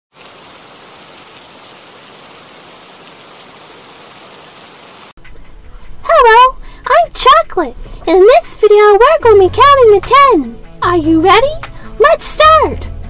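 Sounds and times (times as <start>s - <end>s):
steady rain falling: 0.1s - 5.2s.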